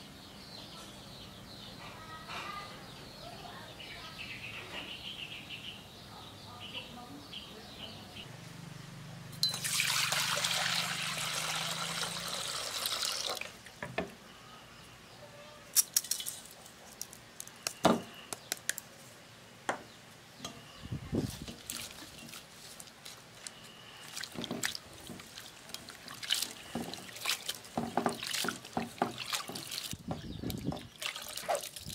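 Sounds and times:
bowl and cups clinking: 0:09.4 - 0:09.9
water pouring into steel bowl: 0:09.4 - 0:13.5.

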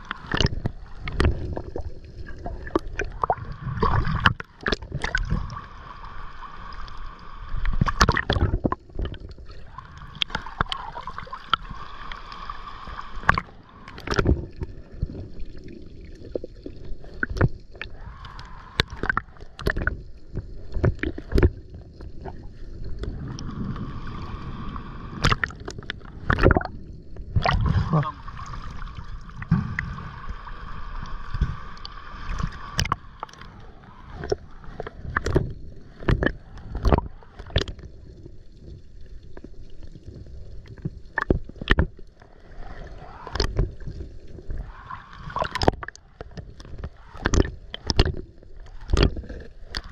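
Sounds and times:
water sloshing against boat hull: 0:31.3 - 0:37.8, 0:45.2 - 0:49.9.

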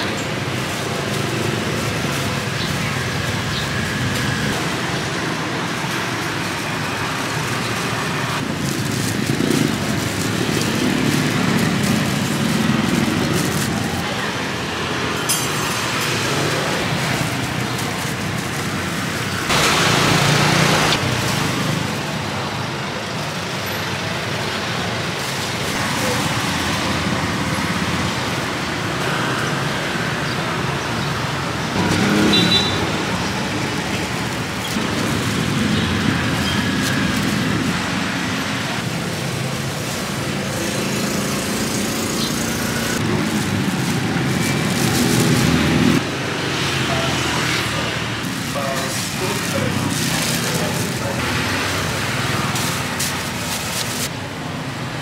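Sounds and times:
street traffic: 0:00.0 - 0:55.0
loud vehicle passing: 0:00.5 - 0:15.2, 0:15.8 - 0:22.0, 0:31.8 - 0:54.1.

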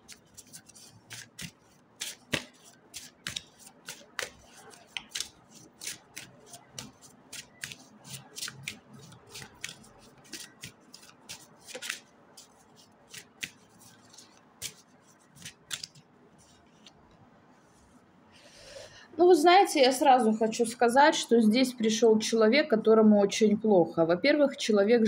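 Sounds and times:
cards shuffled by hand: 0:00.0 - 0:17.0.

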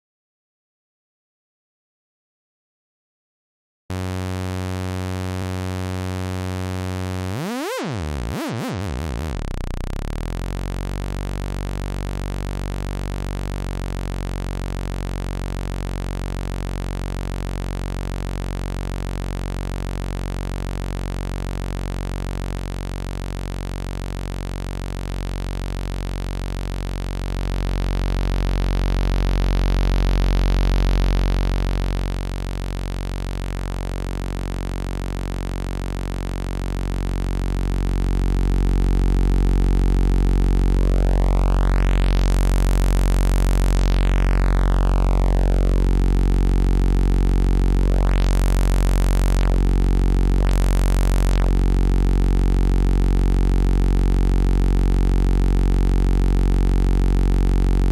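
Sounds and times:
synthesizer sawtooth note: 0:03.9 - 0:14.1, 0:37.5 - 0:57.9.

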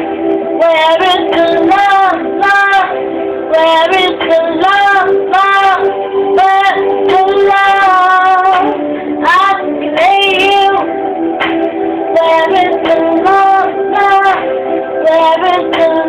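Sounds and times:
instrumental beat: 0:06.4 - 0:16.0.

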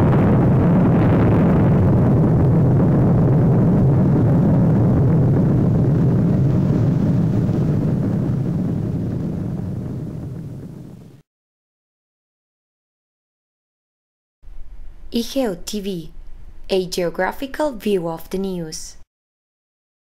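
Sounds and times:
low explosion rumble: 0:00.0 - 0:11.2.

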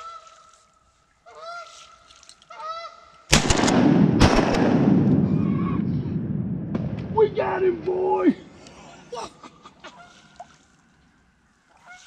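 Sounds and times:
goose honking: 0:01.2 - 0:01.9, 0:02.5 - 0:03.1, 0:11.7 - 0:12.0
shotgun shots: 0:03.3 - 0:07.2.

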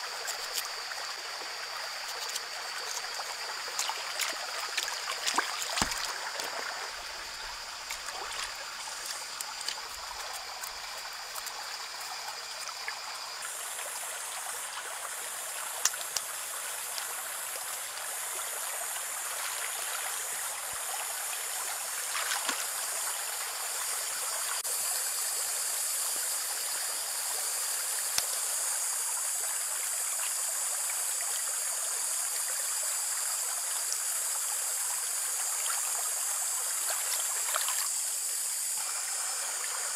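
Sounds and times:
water splashing and running: 0:00.0 - 0:24.7, 0:36.6 - 0:38.0.

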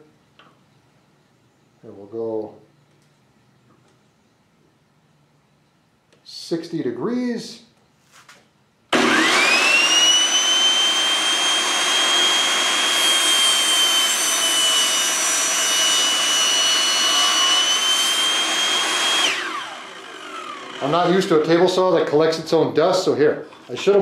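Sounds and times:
table saw motor whining: 0:08.9 - 0:21.6.

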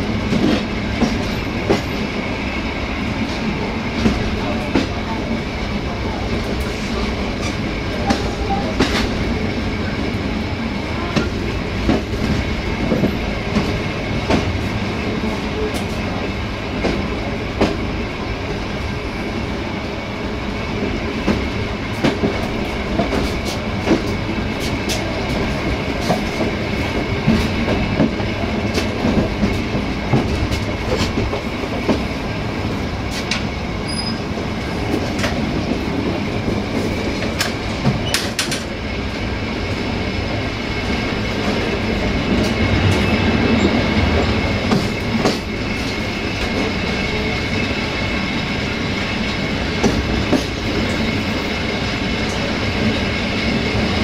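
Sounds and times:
train wheels rumbling and clacking: 0:00.0 - 0:54.0
high wheel squeal: 0:33.8 - 0:34.3.

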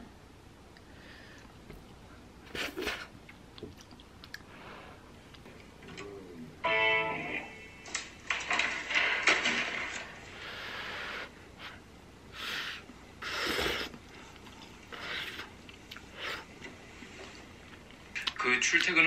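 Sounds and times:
slurping noodles: 0:02.5 - 0:03.1, 0:12.4 - 0:16.5
breathy puffs blowing on food: 0:10.4 - 0:14.1, 0:14.9 - 0:16.5.

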